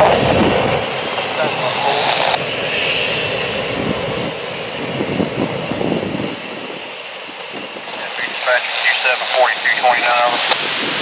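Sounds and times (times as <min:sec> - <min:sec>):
wind buffeting microphone: 0:00.0 - 0:01.7, 0:02.3 - 0:08.5, 0:09.8 - 0:11.0
freight train rolling: 0:00.0 - 0:08.3
train wheel squeal: 0:01.1 - 0:01.7, 0:02.4 - 0:03.3.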